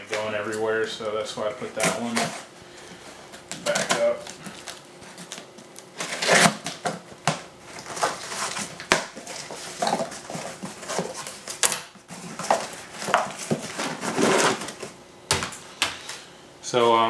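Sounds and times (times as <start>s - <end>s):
cardboard flaps rustling and scraping: 1.5s - 2.6s, 3.4s - 15.0s
blade slicing packing tape: 6.0s - 6.9s.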